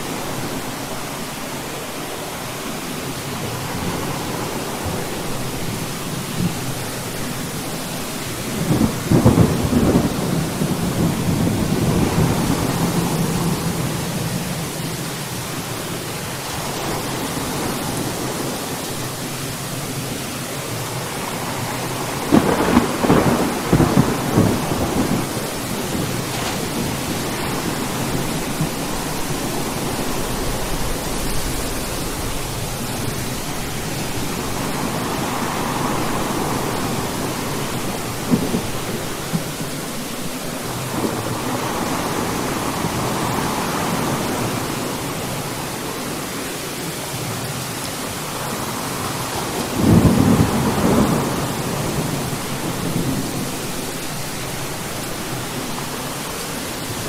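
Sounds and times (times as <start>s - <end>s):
steady rain: 0.0s - 57.0s
thunder clap rumbling: 3.6s - 14.6s, 21.1s - 45.4s, 48.4s - 56.0s.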